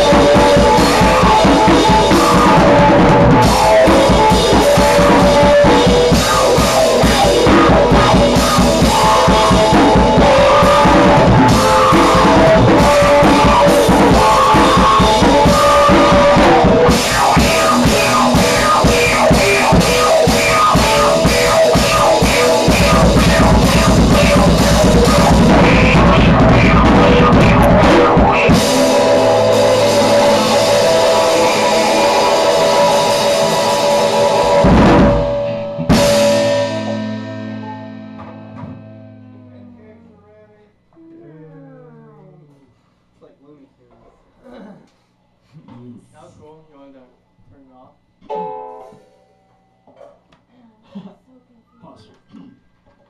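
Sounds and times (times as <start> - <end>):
drum kit with cymbals: 0.0 - 38.3
rock band playing live: 0.0 - 39.6
electric guitar: 0.0 - 42.6.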